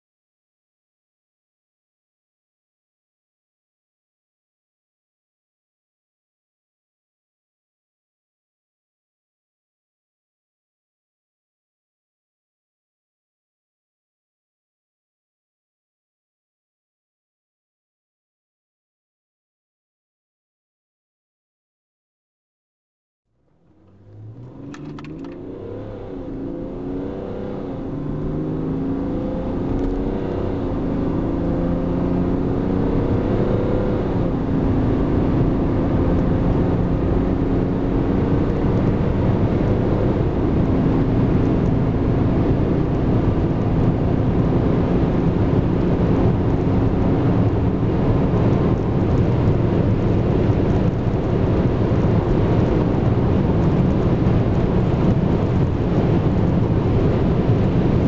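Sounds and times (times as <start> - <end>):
road and wind noise: 23.4 - 58.0
diesel engine accelerating: 23.5 - 58.0.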